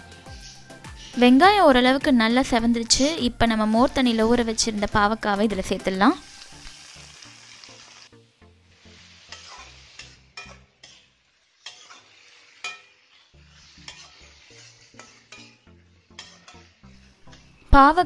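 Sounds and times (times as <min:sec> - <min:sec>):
spatula scraping metal pan: 0:00.0 - 0:17.8
vegetables sizzling in oil: 0:00.0 - 0:18.0.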